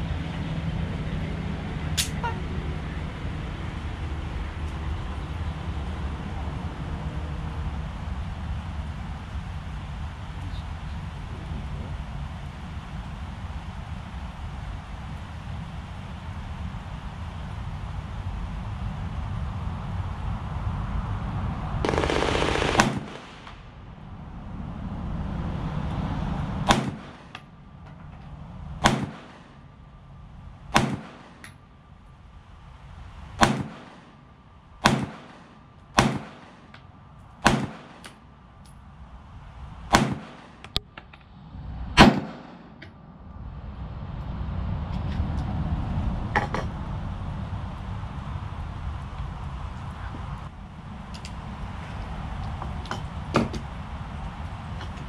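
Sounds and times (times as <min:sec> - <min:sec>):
steady rushing noise: 0:02.6 - 0:55.0
pistol shots: 0:21.9 - 0:23.7, 0:26.7 - 0:27.4, 0:28.8 - 0:29.6, 0:30.7 - 0:31.5, 0:33.4 - 0:34.1, 0:34.8 - 0:36.7, 0:37.4 - 0:38.2, 0:39.9 - 0:40.7, 0:42.0 - 0:42.7.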